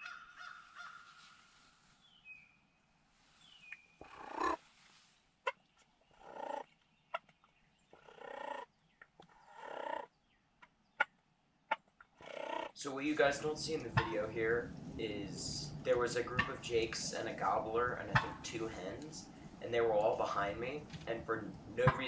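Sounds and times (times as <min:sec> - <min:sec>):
turkey yelping: 0:04.0 - 0:04.6, 0:06.2 - 0:06.6, 0:08.0 - 0:08.7, 0:09.5 - 0:10.1, 0:11.7 - 0:12.8.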